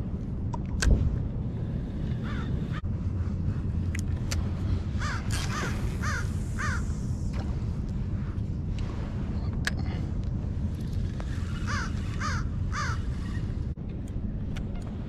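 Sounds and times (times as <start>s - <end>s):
steady low rumble: 0.0s - 15.0s
bird harsh calls: 5.0s - 6.9s, 11.7s - 13.1s.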